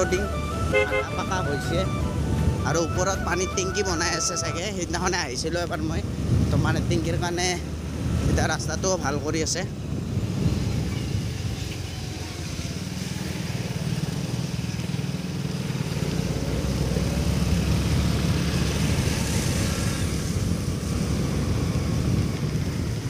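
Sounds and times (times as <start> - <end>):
road noise: 0.0 - 23.0.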